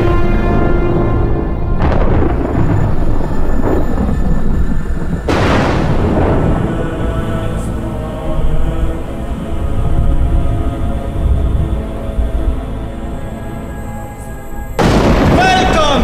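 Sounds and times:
dramatic film music: 0:00.0 - 0:16.0
thunderclaps: 0:00.4 - 0:09.0, 0:14.8 - 0:16.0.

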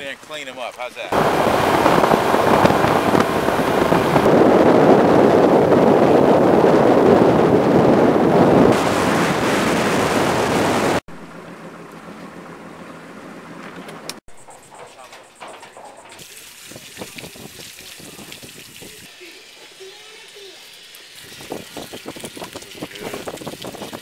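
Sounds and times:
motorboat engine and water rushing: 0:01.1 - 0:14.2
boat idling low hum: 0:01.2 - 0:05.8, 0:11.1 - 0:17.5
wind on microphone: 0:01.2 - 0:11.0, 0:16.6 - 0:19.1, 0:21.2 - 0:24.0.

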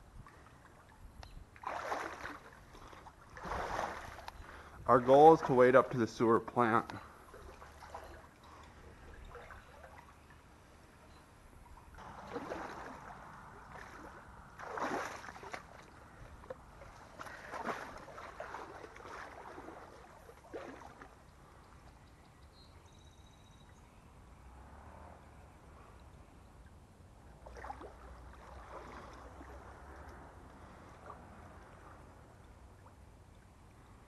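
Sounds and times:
legs sloshing through water: 0:00.0 - 0:21.8, 0:27.3 - 0:34.0
faint steady stream: 0:00.0 - 0:22.7.

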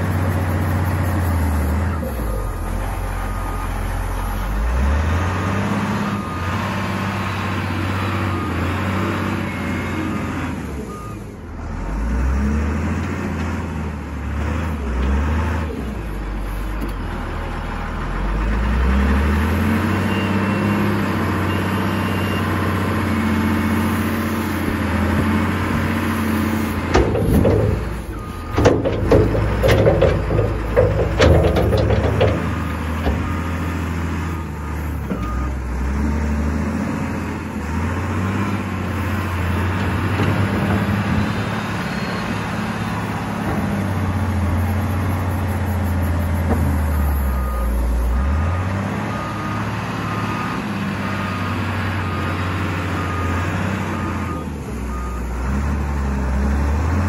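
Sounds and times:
diesel engine revving: 0:00.0 - 0:57.0
bucket clattering and knocking: 0:26.9 - 0:33.6.

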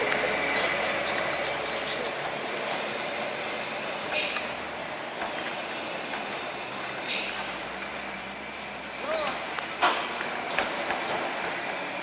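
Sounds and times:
truck engine and road noise: 0:00.0 - 0:12.0
air brake hiss: 0:02.4 - 0:04.6, 0:06.4 - 0:07.6.

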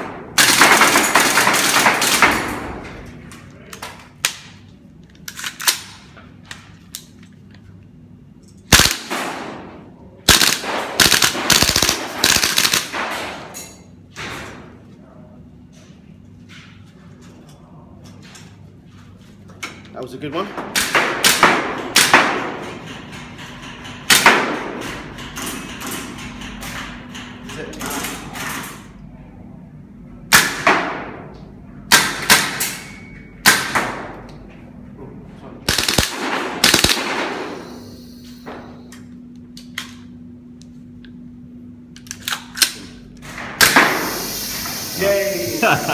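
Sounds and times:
airsoft rifle shots: 0:00.4 - 0:02.5, 0:08.7 - 0:09.6, 0:10.3 - 0:13.4, 0:35.7 - 0:37.8, 0:43.6 - 0:44.2.

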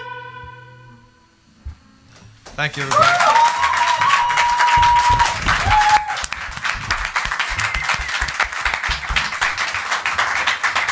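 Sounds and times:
audience applauding: 0:02.6 - 0:10.9.

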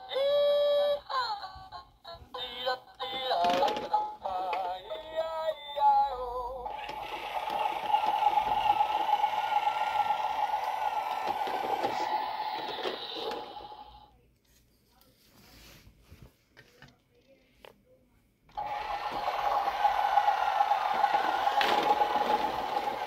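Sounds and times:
toy handling clicks: 0:06.7 - 0:08.8
electronic toy sound effect: 0:06.7 - 0:14.0.

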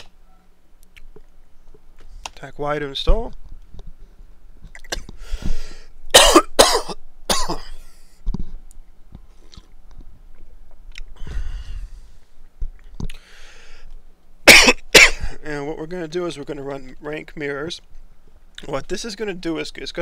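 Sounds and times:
person coughing: 0:06.1 - 0:07.8, 0:14.5 - 0:15.4.

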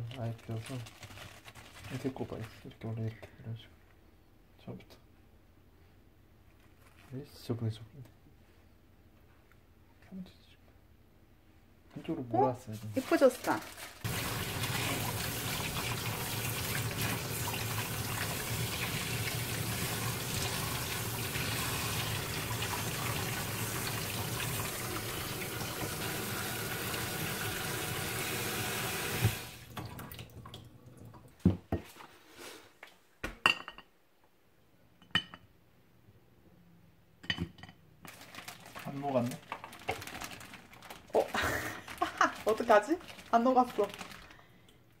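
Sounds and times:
hands washing shellfish: 0:12.8 - 0:31.4, 0:38.0 - 0:44.8.

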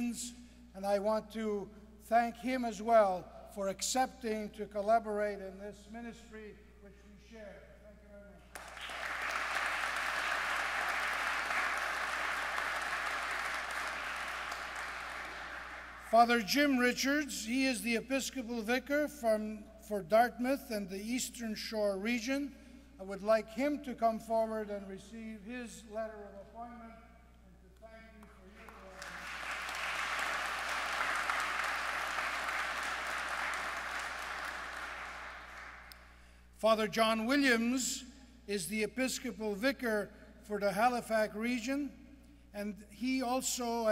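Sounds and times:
congregation applauding: 0:08.5 - 0:16.4, 0:28.2 - 0:36.1.

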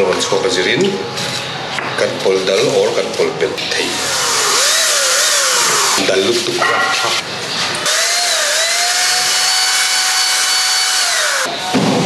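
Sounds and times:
power tool motor whining: 0:03.9 - 0:06.1, 0:07.8 - 0:11.5.

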